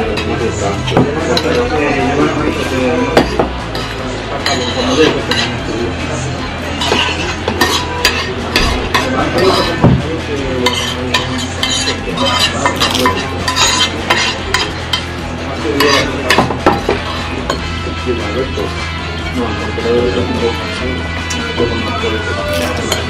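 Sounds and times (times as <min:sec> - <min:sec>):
fork scraping on a plate: 0:03.7 - 0:05.6, 0:06.8 - 0:09.8, 0:10.6 - 0:15.0, 0:22.4 - 0:23.0.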